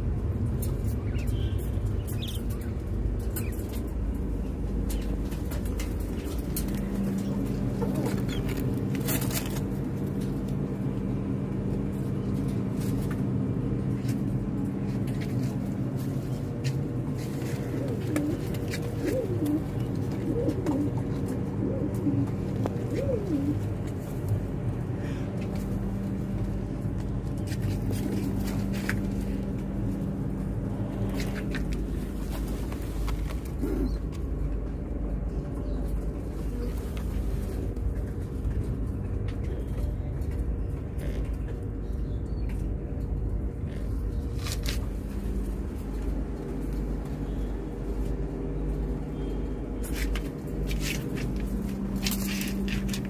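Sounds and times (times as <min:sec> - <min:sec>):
steady low hum: 0:00.0 - 0:53.0
pigeons cooing: 0:04.7 - 0:09.6, 0:17.0 - 0:26.7, 0:30.6 - 0:34.7.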